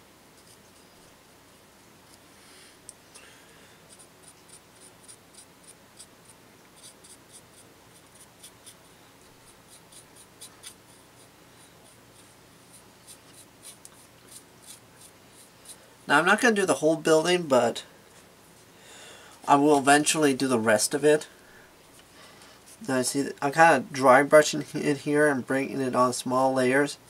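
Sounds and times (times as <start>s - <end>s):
paintbrush scratchy strokes: 0.3s - 1.1s, 3.9s - 15.9s, 18.2s - 18.8s.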